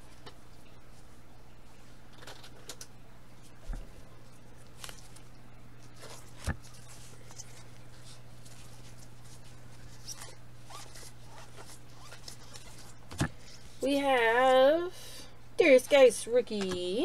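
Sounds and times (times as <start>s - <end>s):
steady low hum: 0.0s - 17.0s
trading cards sliding and rustling: 4.5s - 13.8s.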